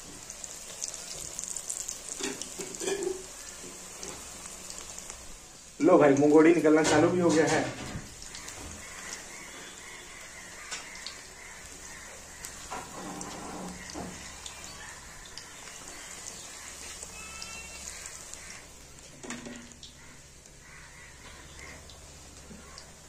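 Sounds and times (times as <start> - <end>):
fritters sizzling in hot oil: 0.0 - 23.0
animal calls: 8.2 - 18.9, 19.8 - 23.0.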